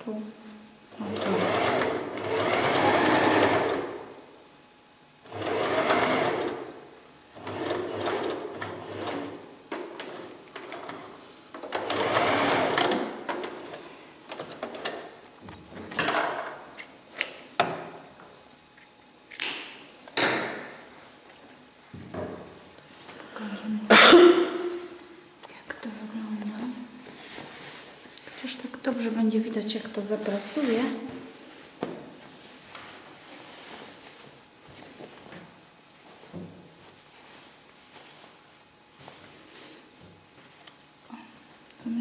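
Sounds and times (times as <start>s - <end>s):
sewing machine stitching: 1.0s - 4.1s, 5.3s - 6.7s, 7.4s - 9.4s, 11.7s - 13.7s.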